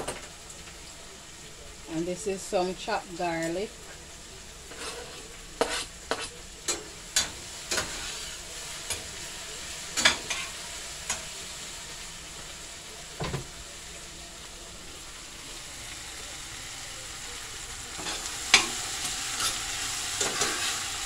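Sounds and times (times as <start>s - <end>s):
vegetables sizzling in oil: 0.0s - 21.0s
spoon knocking and scraping pan: 4.7s - 8.2s, 20.2s - 20.8s.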